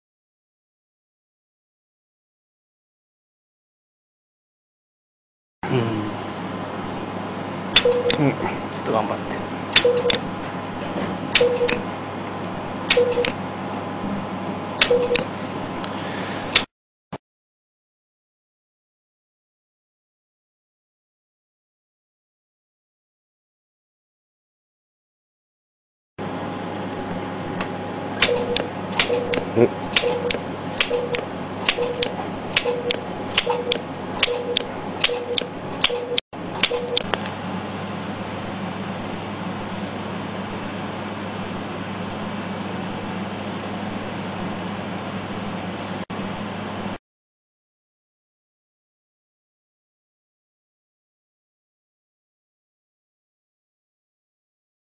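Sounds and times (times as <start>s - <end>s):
short beeps: 7.8s - 8.2s, 9.8s - 10.2s, 11.4s - 11.8s, 12.9s - 13.4s, 14.9s - 15.2s, 28.2s - 31.2s
short low beep: 9.8s - 10.2s, 11.4s - 11.8s, 12.9s - 13.3s, 14.9s - 15.2s.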